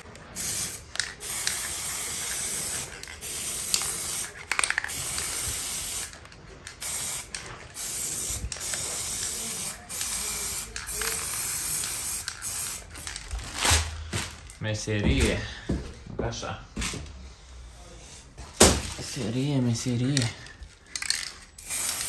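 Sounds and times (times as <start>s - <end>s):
spray-paint can hissing: 0.3s - 13.2s, 21.0s - 22.0s.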